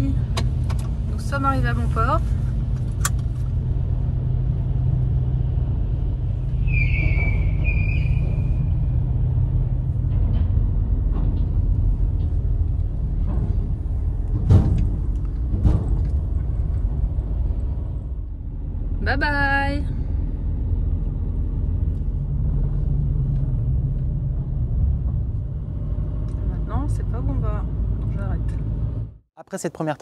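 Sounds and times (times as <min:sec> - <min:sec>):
van engine and tyres rumbling: 0:00.0 - 0:29.9
high squeal: 0:06.5 - 0:09.1
wheels thumping over ramp joints: 0:07.0 - 0:17.2.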